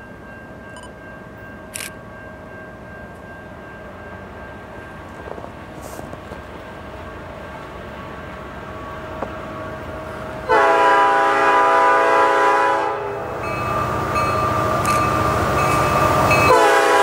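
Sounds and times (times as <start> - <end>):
diesel train engines rumbling: 0.0 - 17.0
locomotive horn chord: 10.5 - 13.4, 16.5 - 17.0.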